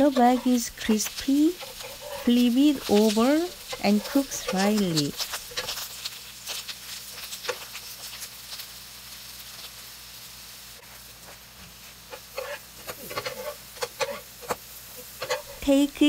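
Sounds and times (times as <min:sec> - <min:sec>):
metal spatula scraping pan: 0:00.0 - 0:05.9, 0:12.1 - 0:15.7
pancakes sizzling in oil: 0:00.0 - 0:16.0.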